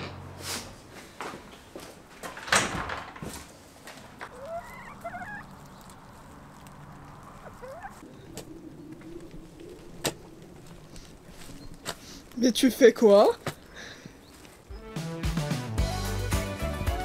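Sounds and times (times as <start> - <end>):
hen clucking: 4.2 - 12.4.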